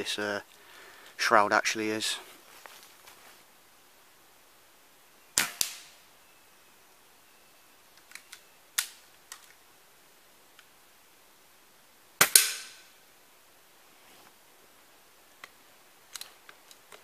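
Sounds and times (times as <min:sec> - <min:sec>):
air rifle shots: 0:05.4 - 0:06.0, 0:12.2 - 0:12.8
small clicks: 0:07.9 - 0:09.6, 0:15.4 - 0:17.0.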